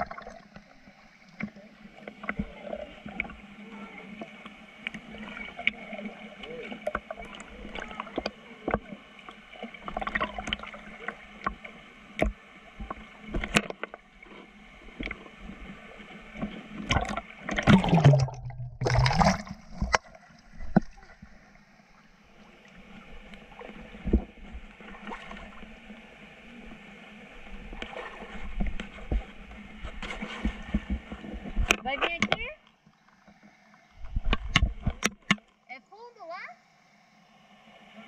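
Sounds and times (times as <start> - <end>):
muffled underwater gurgle: 0.0 - 21.5
river water splashing: 0.0 - 32.4.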